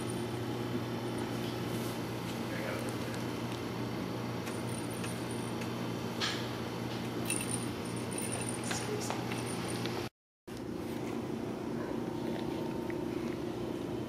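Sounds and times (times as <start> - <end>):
steady low hum: 0.0 - 14.0
small bell jingling in toy ball: 7.2 - 9.9.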